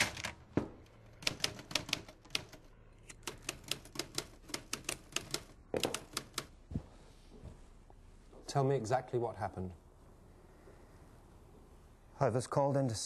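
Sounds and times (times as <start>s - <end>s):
typewriter keys clacking: 1.2s - 6.5s.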